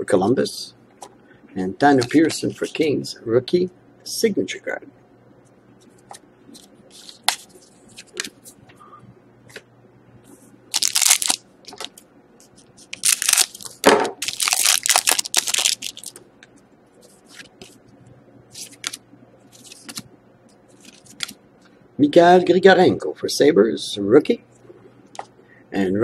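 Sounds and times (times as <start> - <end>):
foil pack crinkling and tearing: 10.7 - 11.8, 12.9 - 16.2.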